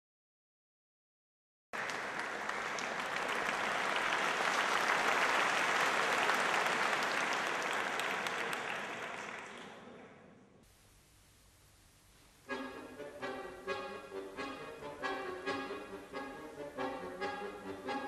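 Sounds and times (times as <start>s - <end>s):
audience applauding: 1.8s - 10.2s.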